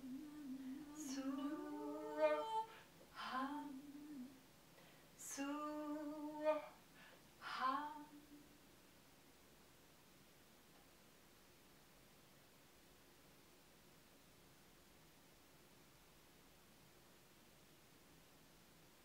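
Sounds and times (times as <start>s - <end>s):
women singing wordless vocals: 0.0s - 4.4s, 5.2s - 6.8s, 7.4s - 8.5s.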